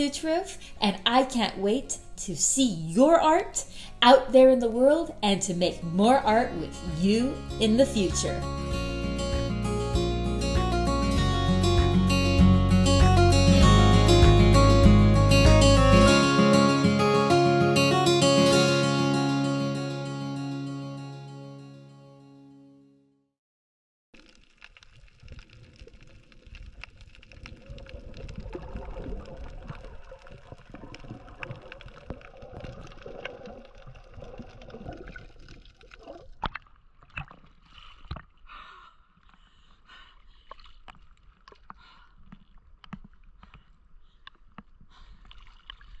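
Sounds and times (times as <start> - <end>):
water bubbling and sloshing: 24.2 - 38.5, 40.2 - 46.0
water splashes: 24.2 - 38.5, 40.4 - 43.7, 45.0 - 46.0.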